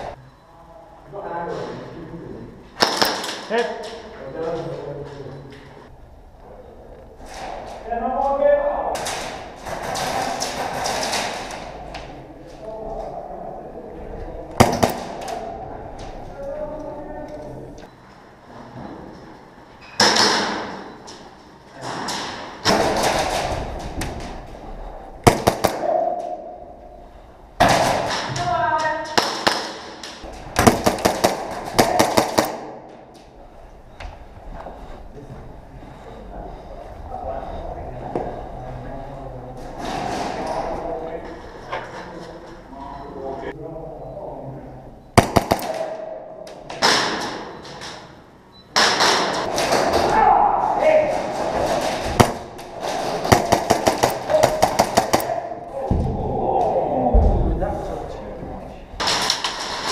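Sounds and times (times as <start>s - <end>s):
airsoft guns firing: 2.8s - 3.5s, 14.6s - 15.3s, 25.2s - 26.3s, 29.2s - 32.9s, 45.2s - 46.1s, 51.6s - 55.6s
airsoft gunshots echoing indoors: 2.8s - 3.8s, 8.9s - 11.8s, 14.5s - 15.5s, 21.9s - 24.4s, 25.2s - 26.7s, 27.6s - 33.0s, 45.2s - 47.6s, 48.7s - 55.7s.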